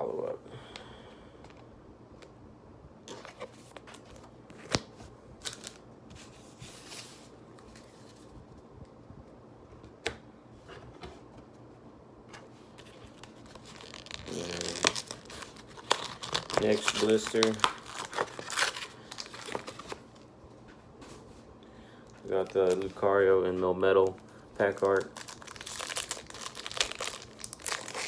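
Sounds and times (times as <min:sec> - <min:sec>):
cards shuffling and rustling: 0:12.3 - 0:20.2, 0:22.1 - 0:28.0.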